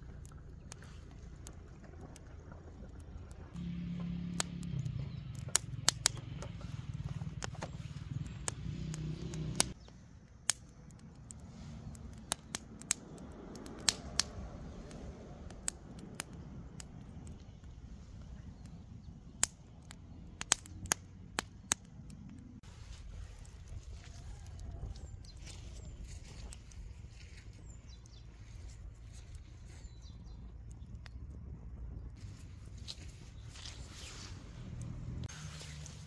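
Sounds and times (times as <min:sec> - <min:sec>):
kindling fire crackling: 0:00.0 - 0:36.0
sharp popping of fire: 0:04.1 - 0:26.8.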